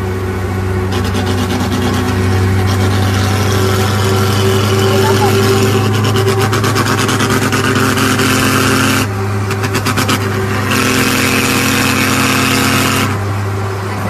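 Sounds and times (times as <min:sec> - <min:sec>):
truck engine from inside cab: 0:00.0 - 0:14.0
quick even pulsing: 0:04.4 - 0:08.5.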